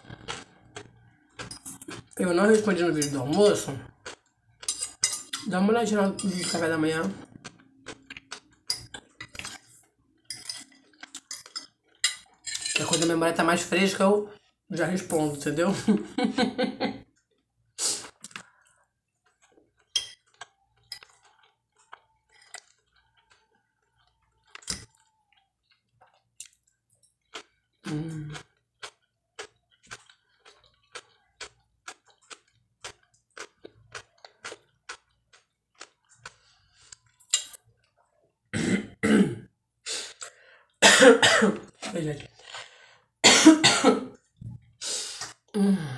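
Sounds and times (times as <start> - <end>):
person chewing food: 0.0 - 5.5, 6.5 - 12.4, 17.0 - 38.5, 41.6 - 43.2
fork clinking on glass plate: 10.3 - 13.1
person coughing: 38.6 - 39.5, 40.8 - 41.7, 43.2 - 44.2.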